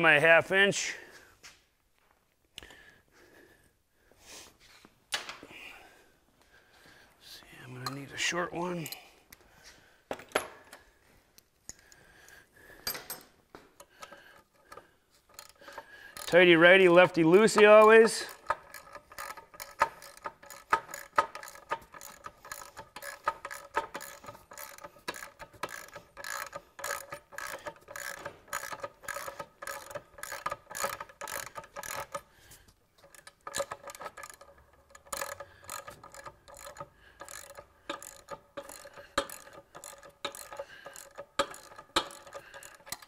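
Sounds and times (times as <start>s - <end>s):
ratchet wrench clicking: 13.8s - 32.3s, 33.0s - 43.0s.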